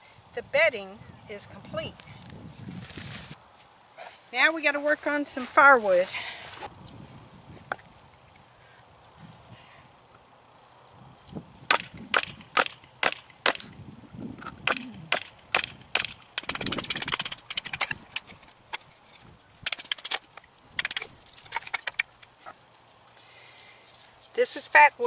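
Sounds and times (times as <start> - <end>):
wood crackling: 11.7 - 24.5.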